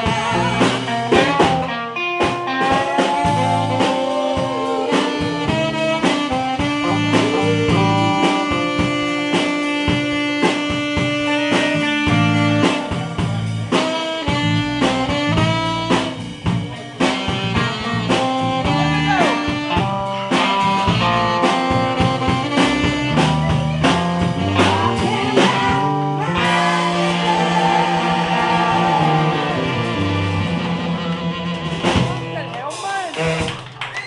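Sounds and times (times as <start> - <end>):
drum kit: 0.0 - 34.0
electric guitar: 0.0 - 34.0.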